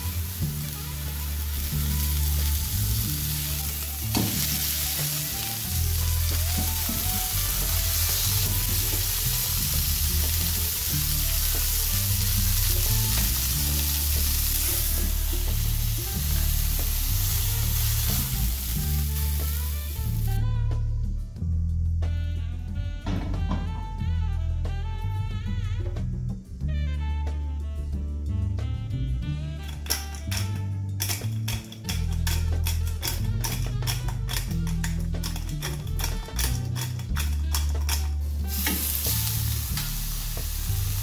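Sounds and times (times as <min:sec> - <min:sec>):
chicken sizzling in frying pan: 0:00.0 - 0:20.4, 0:31.8 - 0:41.0
background music with bass: 0:00.0 - 0:41.0.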